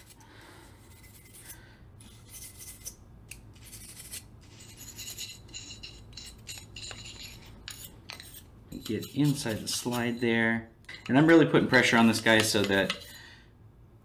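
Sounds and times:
brush scrubbing metal: 3.6s - 10.4s.

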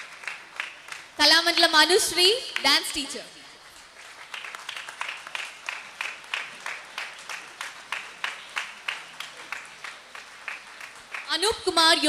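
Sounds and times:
audience applauding: 0.0s - 1.2s, 3.6s - 11.4s.

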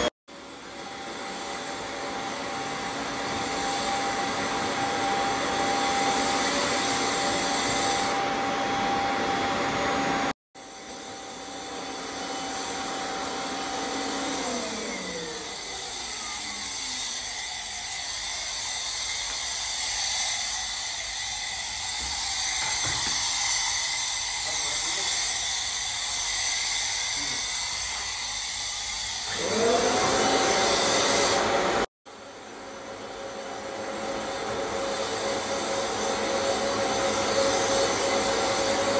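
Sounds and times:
vacuum motor whining: 0.0s - 17.5s, 29.1s - 38.9s.

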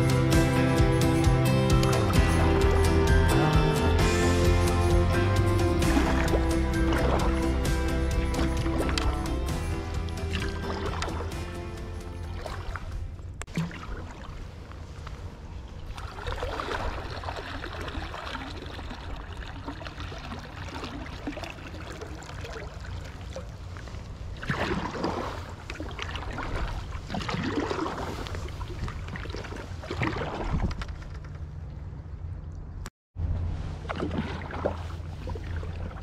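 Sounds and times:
water running along hull: 1.7s - 32.1s, 33.5s - 36.0s
kayak paddle strokes splashing: 5.7s - 11.5s, 12.2s - 31.1s, 33.5s - 36.0s
water dripping from paddle: 15.9s - 29.5s.

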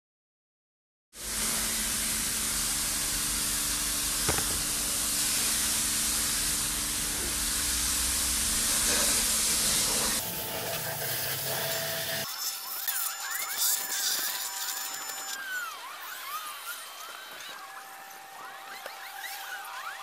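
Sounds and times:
pressure washer water jet hissing: 1.2s - 15.3s.

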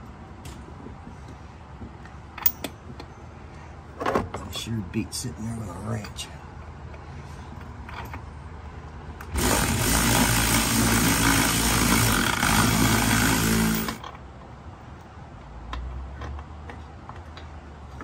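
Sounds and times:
power tool spinning nuts: 9.2s - 14.0s.

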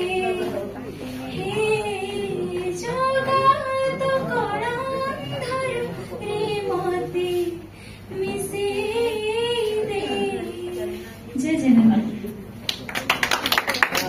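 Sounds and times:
woman singing into microphone: 0.0s - 12.1s.

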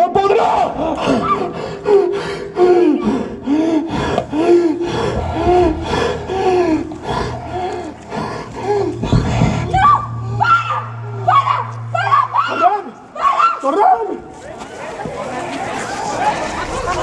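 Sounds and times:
steady low hum: 3.1s - 13.4s.

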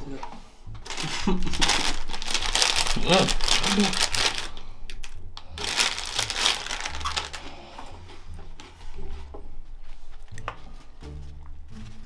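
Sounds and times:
crackles and clicks: 0.8s - 7.6s
crinkling and crunching: 0.8s - 12.0s
low steady tones: 1.8s - 12.0s.

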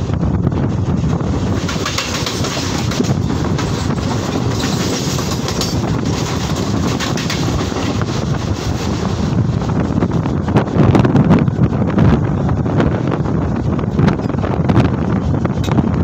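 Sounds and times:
passing train rush: 0.0s - 16.0s
wind on microphone: 0.0s - 16.0s
sharp rail clicks: 1.4s - 9.2s.

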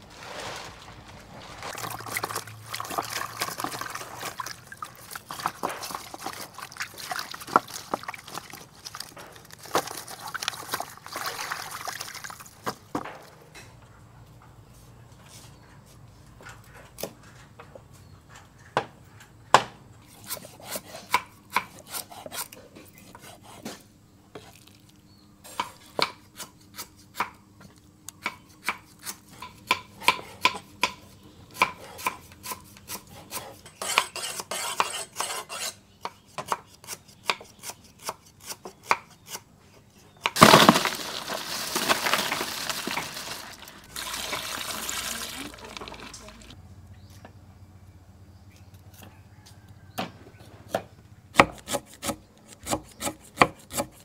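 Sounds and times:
water pouring into plastic bowl: 0.1s - 12.7s, 40.4s - 46.6s
knives chopping on wooden boards: 50.7s - 54.0s.

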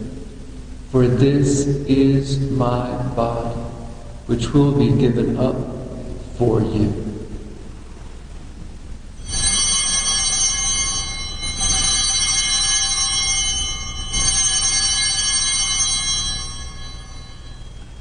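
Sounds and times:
altar bells ringing: 9.2s - 18.0s.

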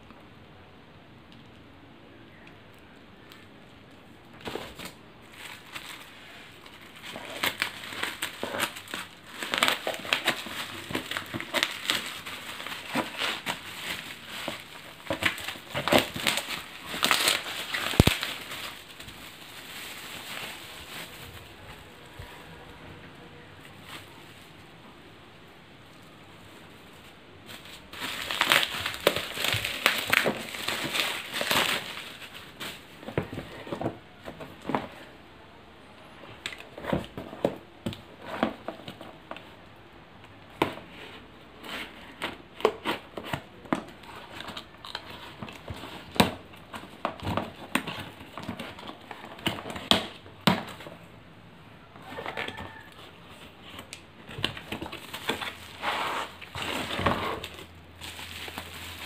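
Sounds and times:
bubble wrap crinkling: 2.3s - 22.8s, 23.4s - 25.1s, 25.8s - 35.2s, 36.2s - 51.1s, 51.8s - 59.0s
cardboard box rustling: 4.4s - 22.3s, 26.8s - 35.1s, 52.0s - 59.0s.

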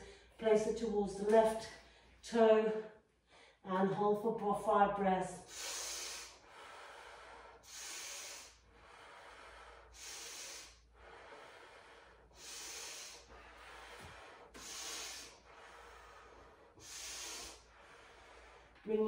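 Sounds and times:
woman breathing through the nose: 5.4s - 18.9s.

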